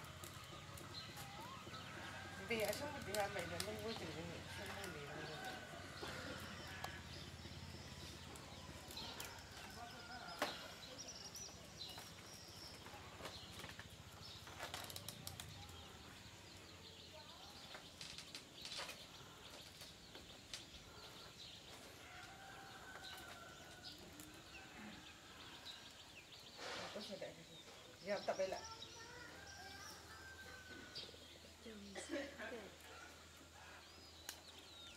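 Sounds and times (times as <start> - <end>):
light clicks of basket weaving: 8.0 - 15.8, 17.7 - 20.8, 21.7 - 24.6, 34.2 - 34.6.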